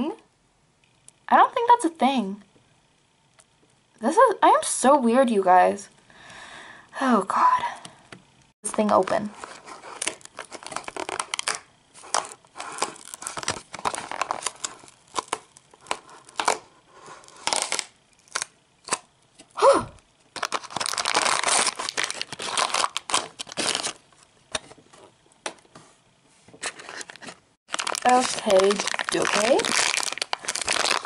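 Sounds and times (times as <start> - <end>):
plastic tearing and crinkling: 8.7 - 19.1, 20.3 - 24.6, 26.6 - 31.0.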